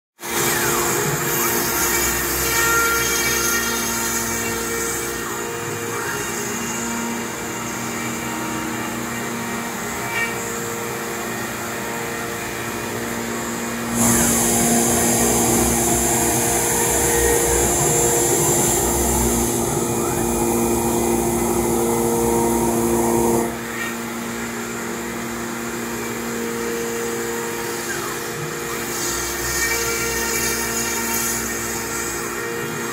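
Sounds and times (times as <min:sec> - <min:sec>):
cnc router spindle whine: 0:00.2 - 0:32.9
dust collector suction: 0:13.8 - 0:23.6.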